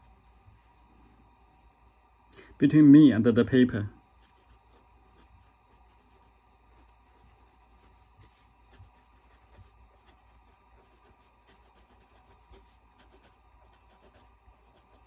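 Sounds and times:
fountain pen scratching on paper: 4.1 - 15.0.

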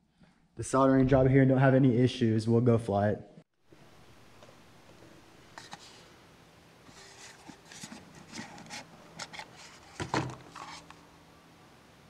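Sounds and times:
cardboard box being opened: 6.9 - 10.9.

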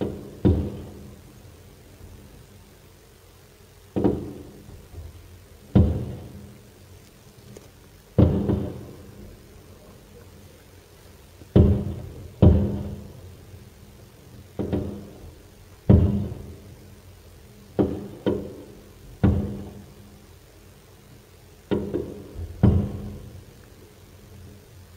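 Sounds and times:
firework shells booming: 5.7 - 6.5, 8.1 - 9.5, 11.4 - 13.6, 14.5 - 16.9, 21.7 - 23.4.

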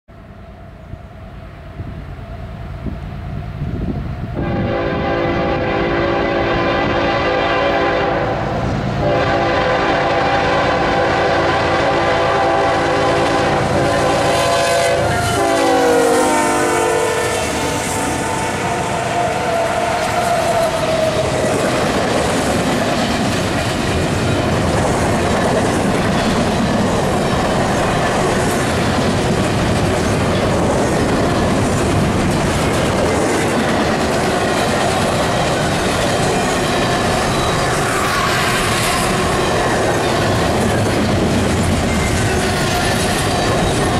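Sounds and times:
locomotive engines rumbling: 0.1 - 43.9
diesel locomotive horn: 4.4 - 21.2
wheels clicking over rail joints: 19.9 - 43.9.

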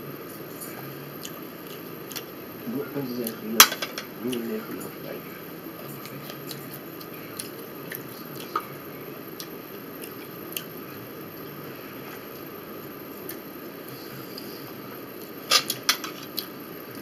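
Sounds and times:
chewing: 0.6 - 2.3, 5.8 - 8.7, 9.3 - 10.8.

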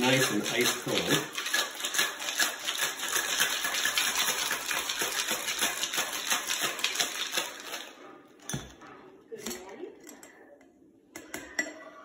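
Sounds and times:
ice rattling in cocktail shaker: 0.0 - 8.0.

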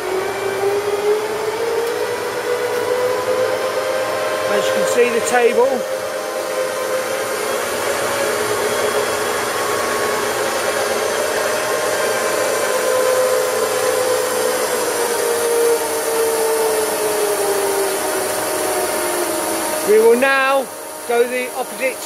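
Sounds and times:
boring machine whirring hum: 0.0 - 22.0.

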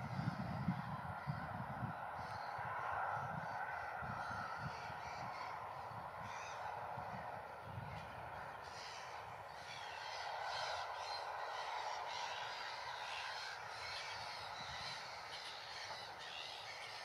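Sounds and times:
distant engine hum: 0.0 - 17.0
faint bird calls: 4.2 - 17.0.

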